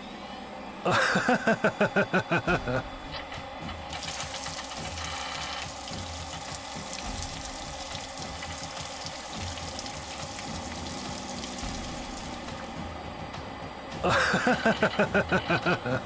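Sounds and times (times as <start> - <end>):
wet concrete pouring and splashing: 3.8 - 12.8.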